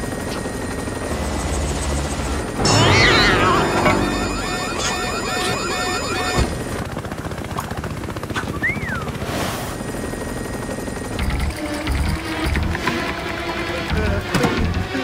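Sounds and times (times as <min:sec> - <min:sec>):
cartoon helicopter rotor chop: 0:00.0 - 0:15.0
repeating cartoon notes: 0:02.6 - 0:06.5.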